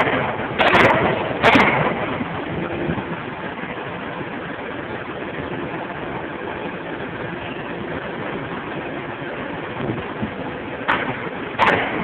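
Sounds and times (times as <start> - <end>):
hydraulic power unit hum: 0.0 - 12.0.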